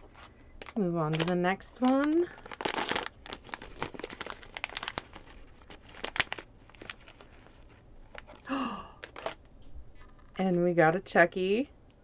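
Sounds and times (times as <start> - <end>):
foil pouch crinkling and tearing: 0.6 - 8.4.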